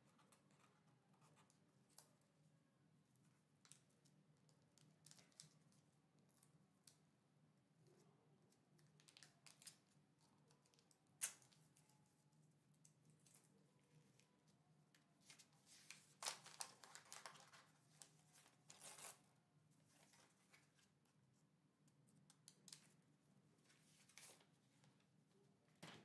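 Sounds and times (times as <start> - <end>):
packaging rustles and clicks: 16.2 - 19.2.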